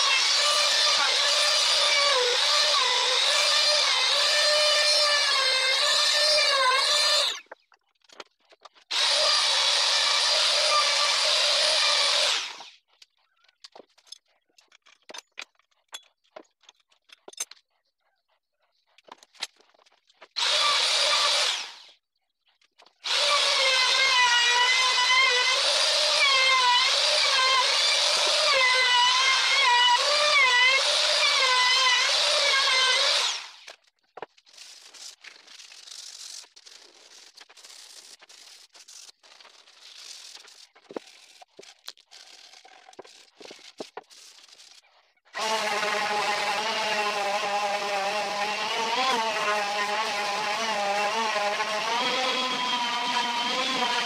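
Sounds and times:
trim router whining: 45.4s - 54.0s.

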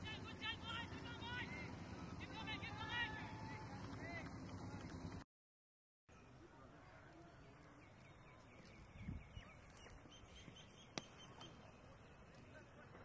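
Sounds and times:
small birds chirping: 6.1s - 13.0s.

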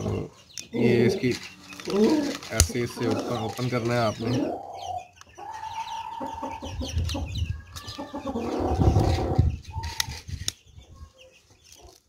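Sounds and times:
chickens clucking: 0.0s - 12.0s
rustling flurry: 0.9s - 4.2s.

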